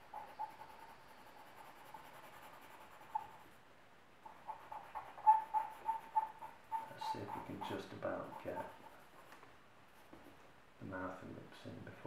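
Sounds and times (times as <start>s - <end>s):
pencil scratching on paper: 0.0s - 3.6s, 4.2s - 9.3s.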